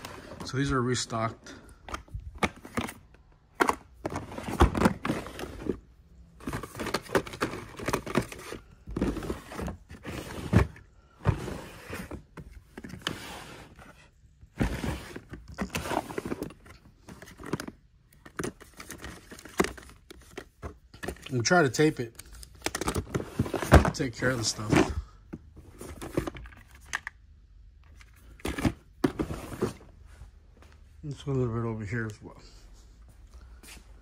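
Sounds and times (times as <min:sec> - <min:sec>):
boxes and bottles clattering: 0:01.8 - 0:21.5, 0:22.6 - 0:26.9, 0:28.0 - 0:29.9
plastic drawers pulled open: 0:03.6 - 0:05.8, 0:06.4 - 0:17.7, 0:22.7 - 0:25.0, 0:28.4 - 0:29.9.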